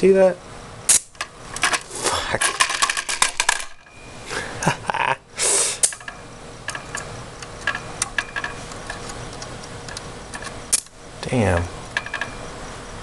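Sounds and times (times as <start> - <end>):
electric arc hissing: 0.9 - 1.2.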